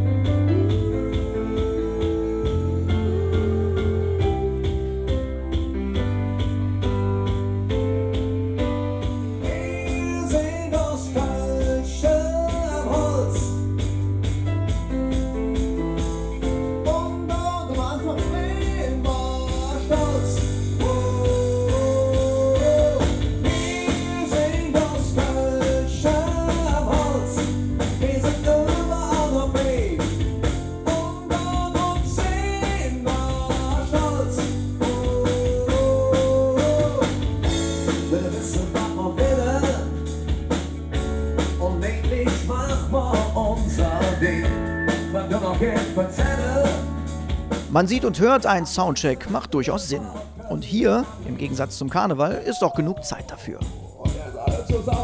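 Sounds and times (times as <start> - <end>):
bass: 0.0 - 55.0
drums: 0.0 - 55.0
guitar: 0.0 - 55.0
person singing: 0.5 - 5.8, 9.4 - 13.6, 16.8 - 30.0, 30.9 - 37.2, 38.1 - 40.0, 41.6 - 46.9, 47.7 - 55.0.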